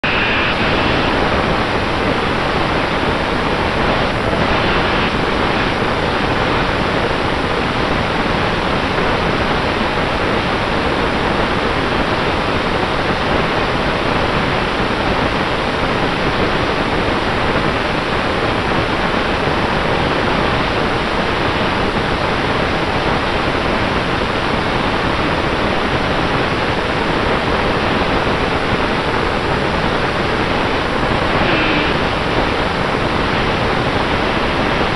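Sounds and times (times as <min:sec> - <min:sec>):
propeller rushing noise: 0:00.0 - 0:06.4, 0:30.5 - 0:34.4
faint motor whine: 0:00.0 - 0:34.9.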